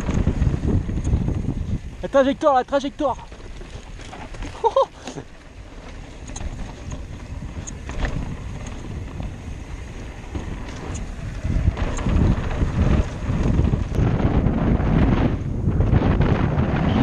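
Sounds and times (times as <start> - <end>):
mountain bike rumble and rattle: 0.0 - 17.0
wind buffeting microphone: 0.0 - 17.0
small knocks from trail: 3.2 - 9.4.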